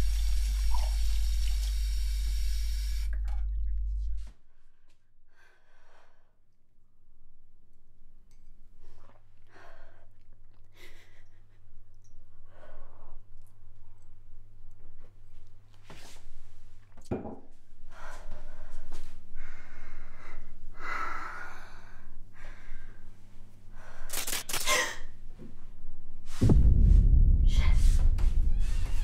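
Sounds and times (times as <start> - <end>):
loud low rumbling hit: 26.4 - 29.0.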